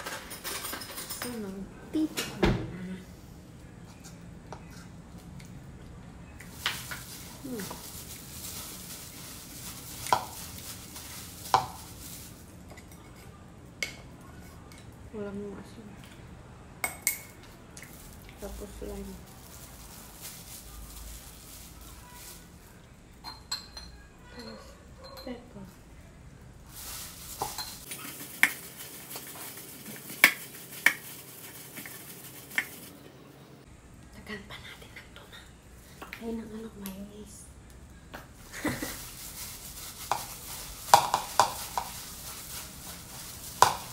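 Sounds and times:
gloved hand mixing food in bowl: 0:06.5 - 0:12.7, 0:26.6 - 0:32.9, 0:38.5 - 0:43.9
spoon clinking against ceramic bowl: 0:23.2 - 0:25.4.

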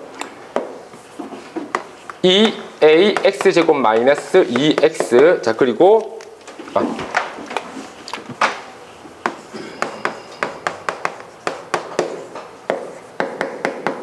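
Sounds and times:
chalk clicking on chalkboard: 0:00.2 - 0:06.5, 0:09.2 - 0:14.0
eraser rubbing on board: 0:01.0 - 0:05.5, 0:08.9 - 0:13.2.

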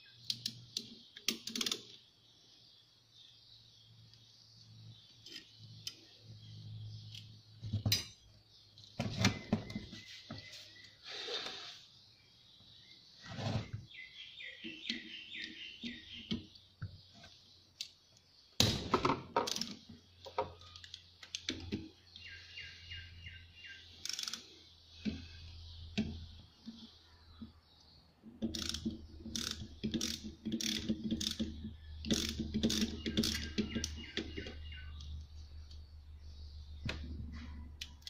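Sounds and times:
birds chirping: 0:00.0 - 0:38.0
ratchet wrench clicking on metal: 0:24.0 - 0:24.4, 0:28.5 - 0:33.6.

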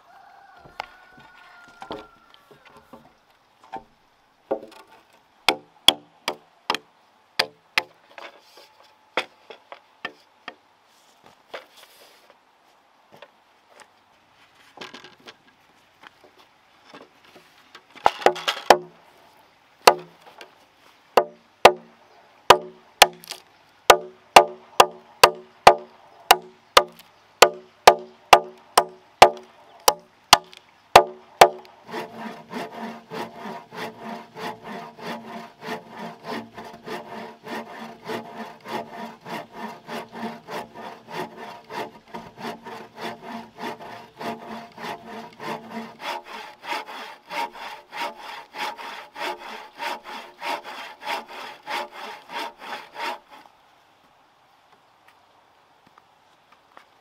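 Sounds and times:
wood rustling: 0:00.6 - 0:06.0, 0:07.8 - 0:21.9, 0:22.5 - 0:53.6
machete chopping log: 0:05.5 - 0:06.8, 0:18.0 - 0:18.9, 0:19.9 - 0:20.2, 0:21.2 - 0:21.9, 0:22.5 - 0:31.7.

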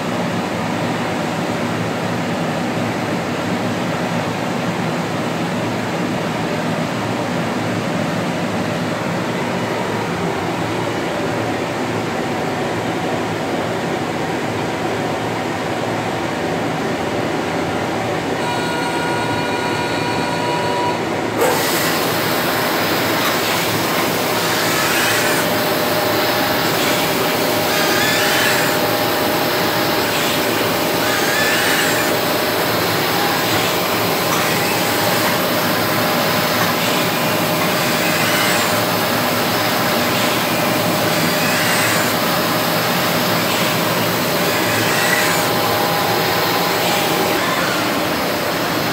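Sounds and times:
printing press mechanical drone: 0:00.0 - 0:48.9
pitched machine whine: 0:17.7 - 0:48.9
machine hiss: 0:21.4 - 0:48.9.

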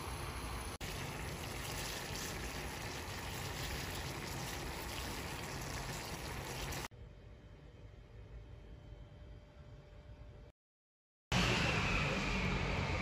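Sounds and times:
water boiling in a pot: 0:00.0 - 0:06.9.

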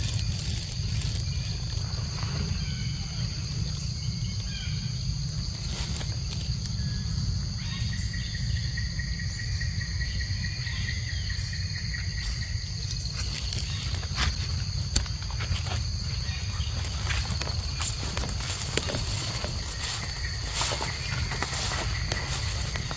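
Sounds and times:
rustles and ticks: 0:00.0 - 0:04.6, 0:05.2 - 0:06.9, 0:12.1 - 0:22.9
insects chorus: 0:00.0 - 0:22.9.

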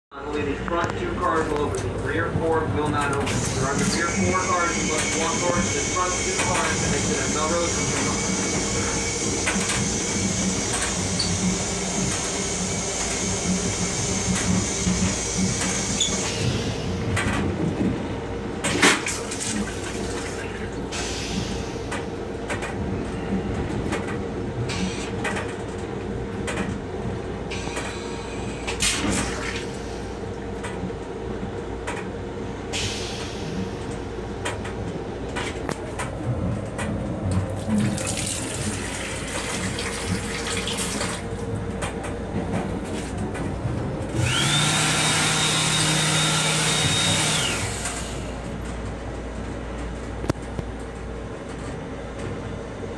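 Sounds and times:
toilet flushing water rushing: 0:37.6 - 0:41.3.

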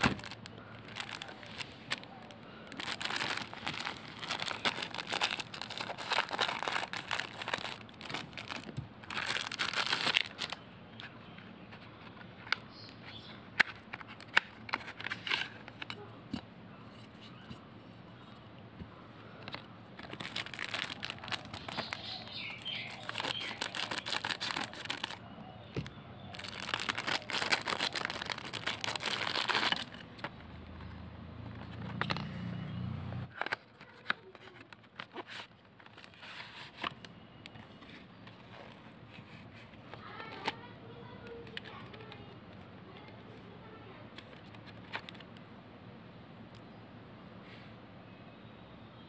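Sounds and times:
plastic wrap and cardboard crinkling: 0:00.0 - 0:10.6, 0:19.4 - 0:25.2, 0:25.8 - 0:30.3, 0:33.3 - 0:39.4.

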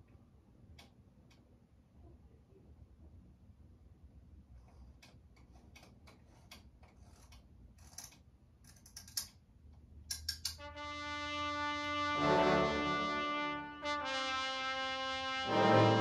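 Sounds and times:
faint low hum: 0:00.0 - 0:10.1
held brass chord: 0:10.6 - 0:16.0.

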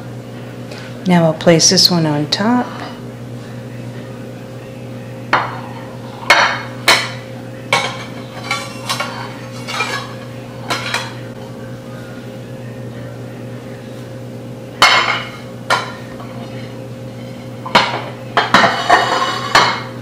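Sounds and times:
steady low hum: 0:00.0 - 0:20.0
plates and cake server clinking: 0:05.3 - 0:11.3, 0:14.8 - 0:19.9.

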